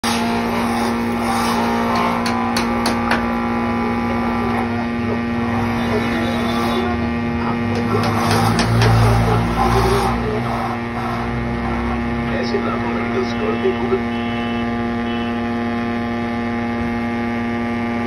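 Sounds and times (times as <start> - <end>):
electric motor humming: 0.0 - 18.0
sharp knocks: 1.9 - 3.3, 7.7 - 9.1.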